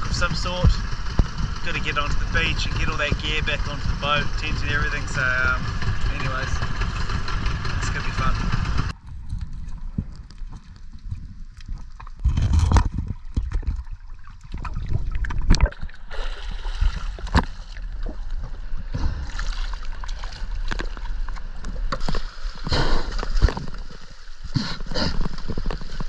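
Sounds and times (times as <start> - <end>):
sea water splashing: 9.0 - 26.0.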